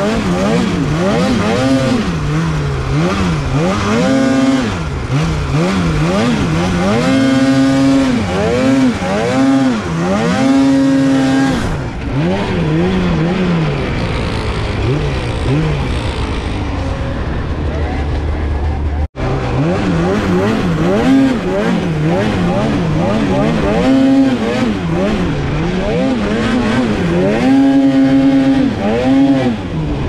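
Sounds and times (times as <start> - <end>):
snowmobile engine revving: 0.0 - 30.0.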